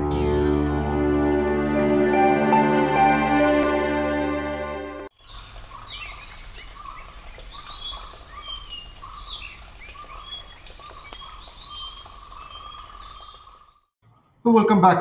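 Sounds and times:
birds chirping and whistling: 5.3 - 13.7.

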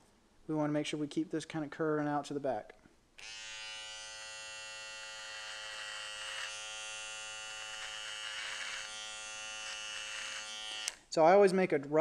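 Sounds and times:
electric hair trimmer humming: 3.2 - 11.0
trimmer rasping through hair: 3.2 - 11.0.

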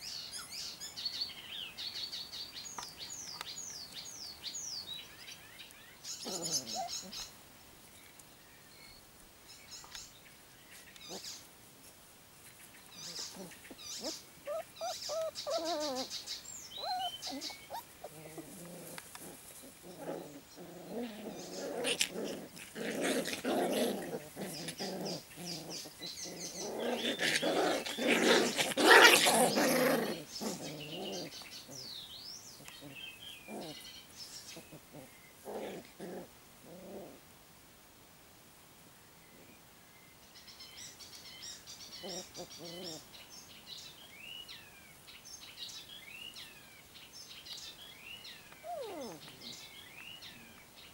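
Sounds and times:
birds chirping: 0.0 - 11.5, 12.4 - 36.0, 39.2 - 50.9
puppies growling and yipping: 6.2 - 7.3, 13.0 - 31.9, 32.8 - 33.9, 34.5 - 37.2, 42.0 - 43.0, 48.5 - 50.4
rustling in grass: 10.2 - 31.8.

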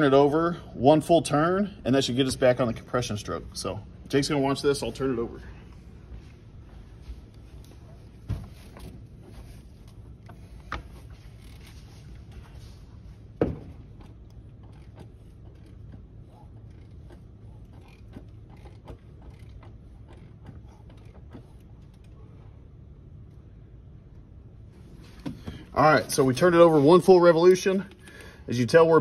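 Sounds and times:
small clicks and creaks: 8.6 - 12.6, 13.9 - 22.2.

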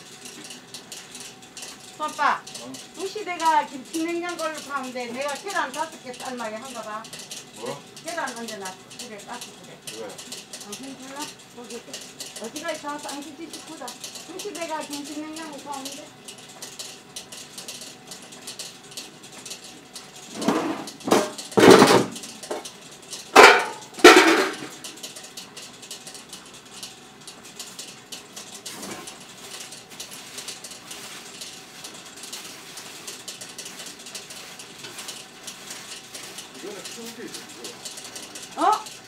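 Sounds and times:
light ticking: 0.0 - 20.3, 24.7 - 39.0
metal clanks and knocks: 20.3 - 22.7, 23.3 - 25.0.

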